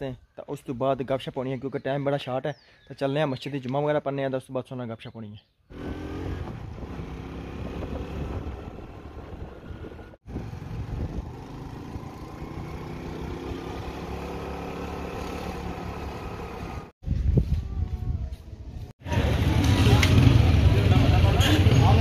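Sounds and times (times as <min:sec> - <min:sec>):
motorcycle engine riding: 0:05.7 - 0:16.9, 0:19.0 - 0:22.0.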